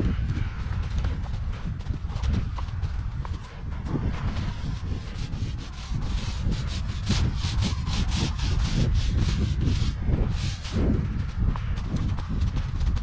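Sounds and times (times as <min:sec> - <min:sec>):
low rumble: 0:00.0 - 0:13.0
paint roller rasping on concrete: 0:03.9 - 0:10.8.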